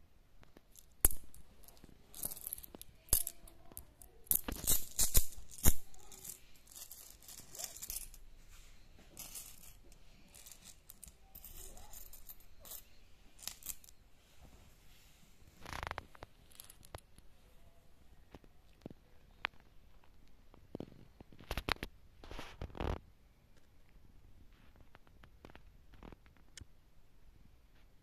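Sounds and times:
coins clinking and jingling: 0.7s - 8.2s, 9.1s - 14.0s.

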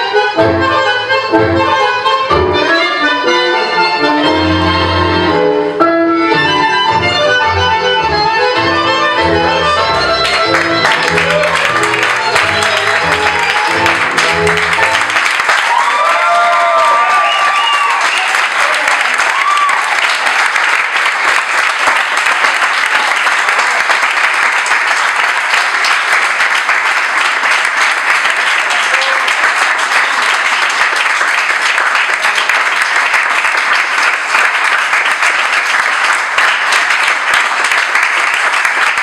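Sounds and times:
audience applauding: 9.7s - 39.0s.

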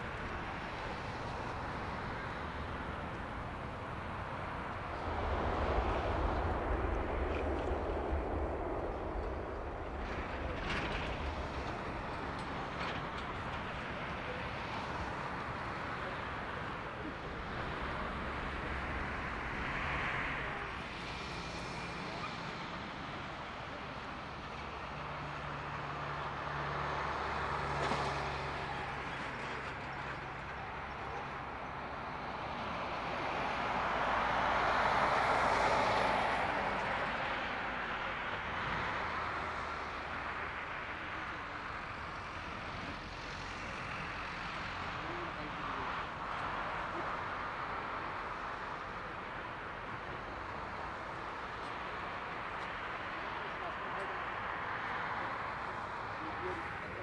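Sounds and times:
jet engines idling: 0.0s - 24.7s.

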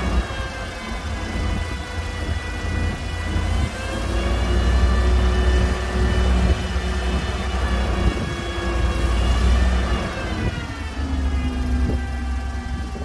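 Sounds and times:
hydraulic hoist whine: 0.0s - 13.0s
truck engine rumbling: 0.0s - 13.0s.

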